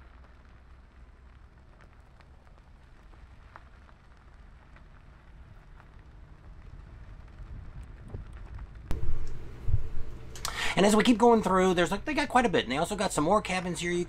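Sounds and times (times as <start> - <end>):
gravel crackling under tyres: 0.0 - 8.9.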